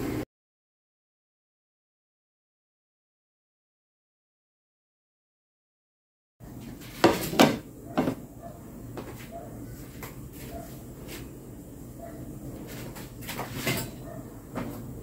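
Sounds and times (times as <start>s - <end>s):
dishes knocking and clicking: 7.0s - 8.2s.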